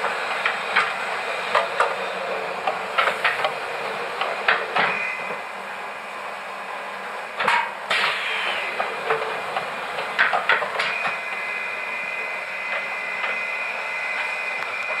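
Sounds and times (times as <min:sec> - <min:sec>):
motor high whine: 0:07.9 - 0:10.1, 0:10.7 - 0:15.0.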